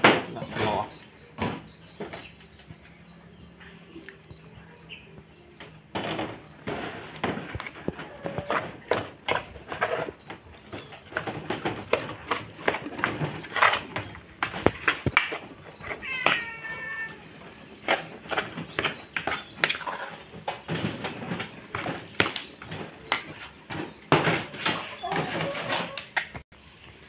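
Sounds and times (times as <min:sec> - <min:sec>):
cats meowing: 0:15.6 - 0:17.8.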